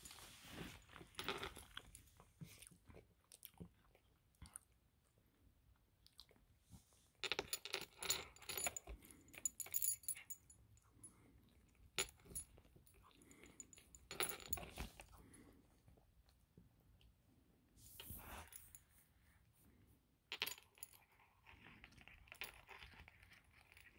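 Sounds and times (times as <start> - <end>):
cat crunching and chewing: 0.5 - 6.6, 21.0 - 23.9.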